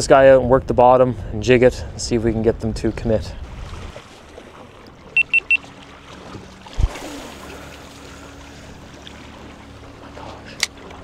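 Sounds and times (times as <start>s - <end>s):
motorboat engine drone: 3.4s - 11.0s
short high electronic beeps: 5.2s - 5.6s.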